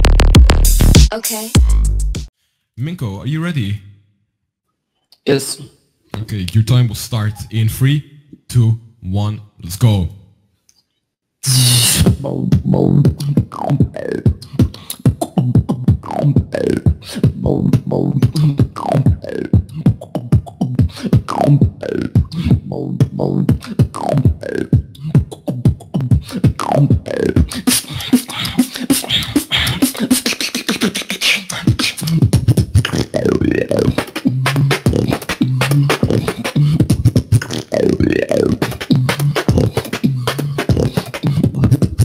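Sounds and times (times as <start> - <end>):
beatboxing kick and snare clicks: 0.0 - 2.3, 11.6 - 42.0
swooping beatbox bass: 0.0 - 2.3, 11.4 - 42.0.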